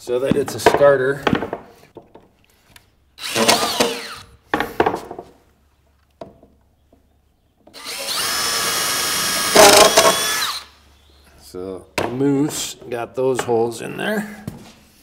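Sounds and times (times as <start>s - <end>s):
cordless drill boring into bone: 3.2s - 4.3s, 7.7s - 10.8s.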